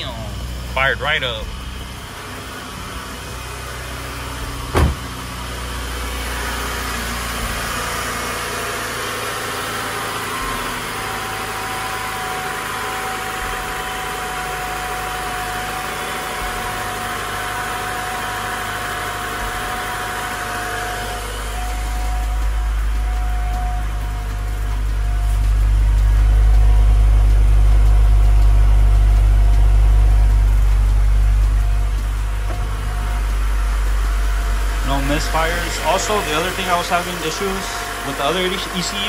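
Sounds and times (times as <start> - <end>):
steady whine: 0.0 - 6.6, 10.0 - 39.0
car engine idling: 0.0 - 39.0
sharp thump: 4.7 - 5.2.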